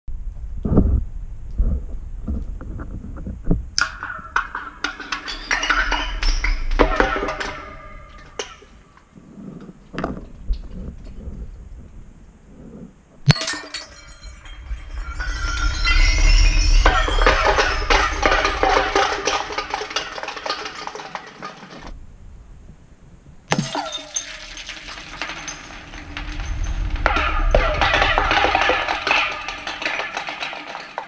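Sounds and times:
object rattling down a pipe: 3.8 - 11.4, 13.3 - 22.0, 23.5 - 31.0
sharp hit and clatter: 13.3 - 22.0, 23.5 - 31.0.

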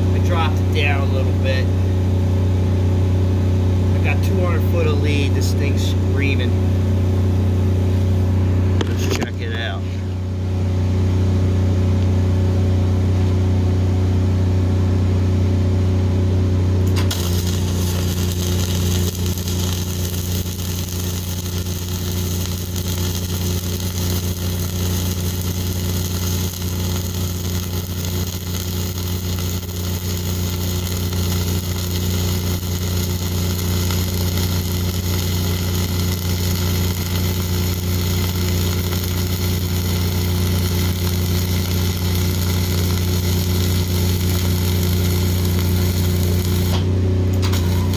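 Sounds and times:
welding arc crackling: 0.0 - 1.7, 3.9 - 6.5, 16.8 - 47.9
welder engine humming: 0.0 - 47.9.

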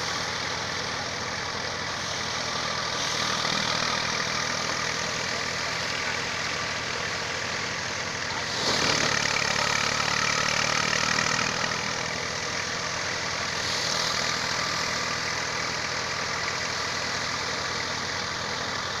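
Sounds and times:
diesel tractor engine drone: 0.0 - 19.0
thresher drum and blower: 8.2 - 15.7.

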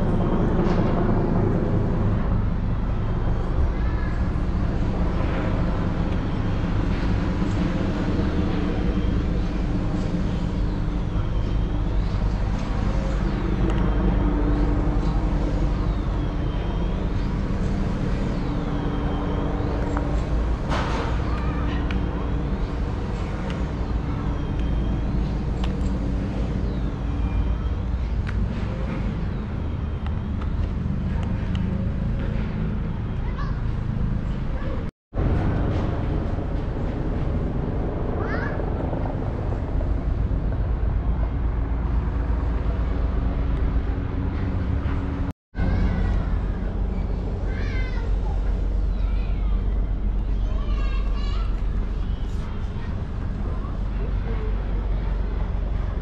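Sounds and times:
street traffic rumbling: 0.0 - 56.0.

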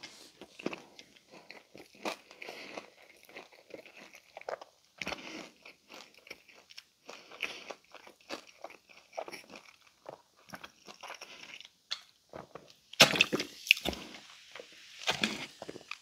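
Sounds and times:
crunchy chewing: 0.4 - 12.6.

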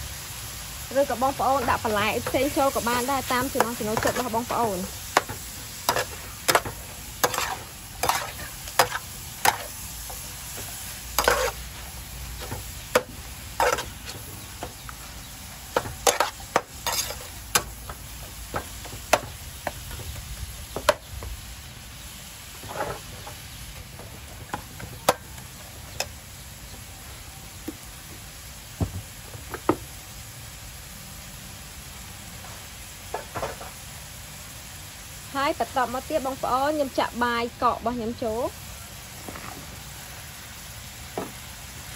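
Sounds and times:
food sizzling: 0.0 - 41.9
metal spatula scraping wok: 1.4 - 19.8, 22.5 - 25.4.

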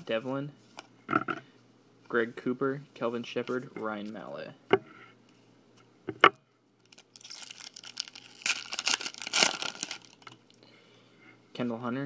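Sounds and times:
foil wrapper crinkling and tearing: 6.8 - 10.4.

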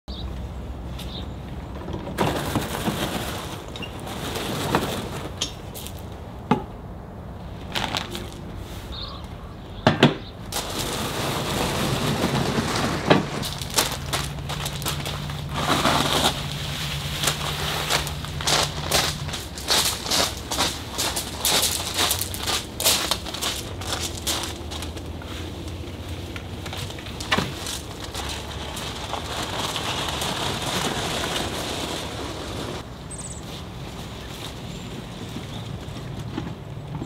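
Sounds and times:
cart wheels on gravel: 1.1 - 6.1, 7.6 - 9.1, 10.5 - 37.0
footsteps on gravel: 7.7 - 9.1, 10.5 - 31.8.

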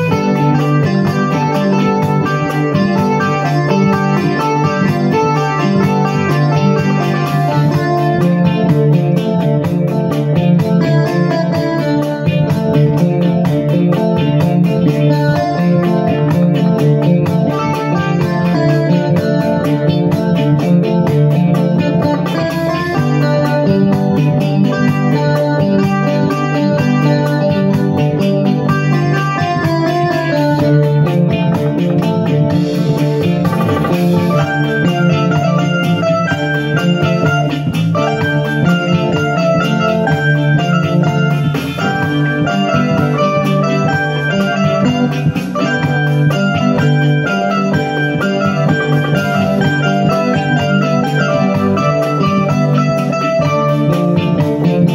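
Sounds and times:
drum beat: 0.0 - 54.9
electronic keyboard music: 0.0 - 54.9.

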